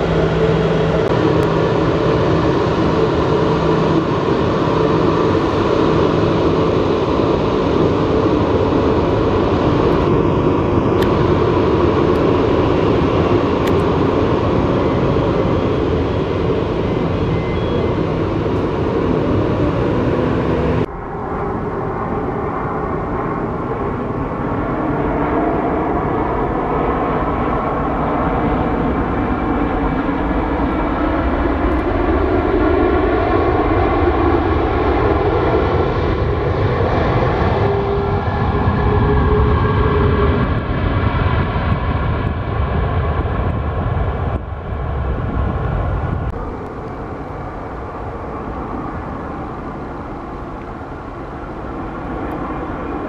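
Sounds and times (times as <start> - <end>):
jet engines running: 0.0 - 53.0.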